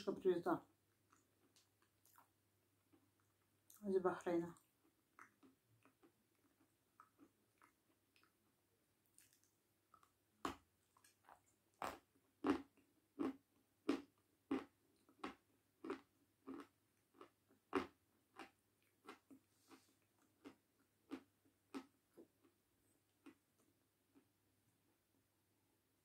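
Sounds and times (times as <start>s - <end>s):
crunchy chewing: 0.9s - 3.8s, 4.6s - 8.6s, 9.2s - 22.6s.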